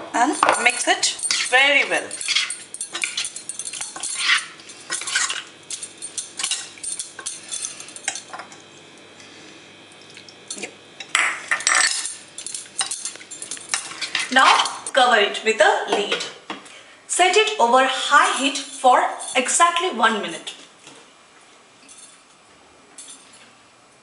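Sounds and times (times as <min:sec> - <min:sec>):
bangles clinking on metal pan: 0:00.4 - 0:08.4, 0:11.5 - 0:14.9.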